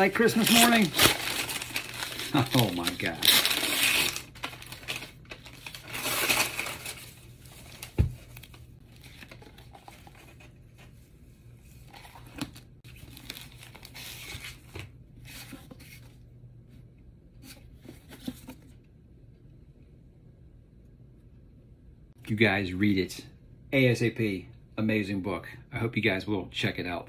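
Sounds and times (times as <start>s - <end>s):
wrapping paper tearing and crumpling: 0.0s - 9.2s.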